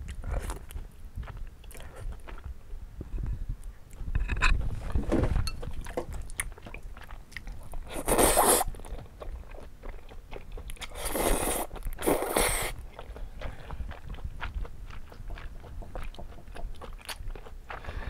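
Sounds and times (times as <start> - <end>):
wet chewing: 0.0 - 2.7, 3.6 - 18.0
noodle slurping: 7.8 - 8.9, 10.8 - 14.3.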